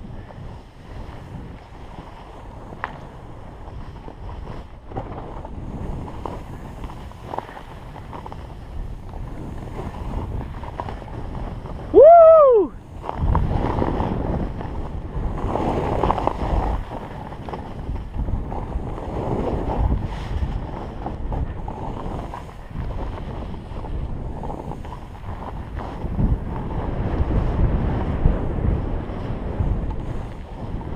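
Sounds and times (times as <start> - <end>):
wind rushing over microphone: 0.0 - 30.9
person yelling: 11.9 - 12.8.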